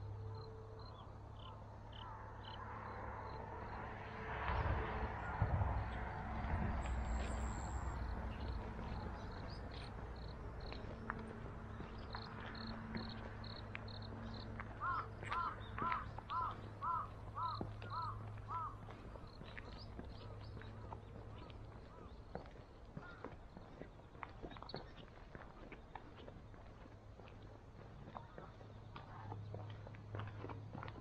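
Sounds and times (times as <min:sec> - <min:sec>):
crow cawing: 0:01.4 - 0:02.6, 0:14.8 - 0:19.0, 0:23.0 - 0:23.4.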